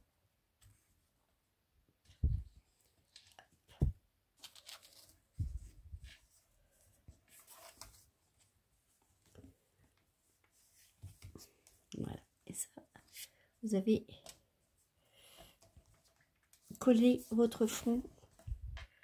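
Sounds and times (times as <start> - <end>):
paper rustling: 2.1 - 8.5.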